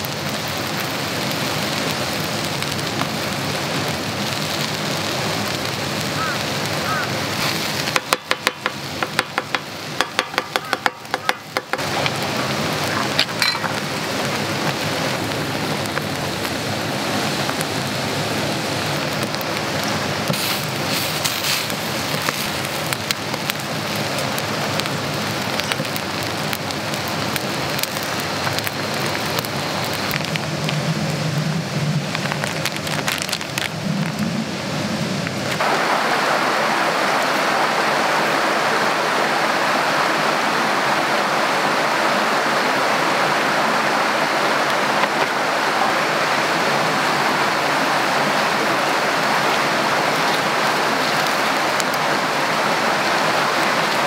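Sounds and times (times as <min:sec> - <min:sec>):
batter sizzling on griddle: 0:00.0 - 0:34.3
campfire burning hiss: 0:00.0 - 0:54.0
metal spatula chopping on griddle: 0:08.0 - 0:11.8.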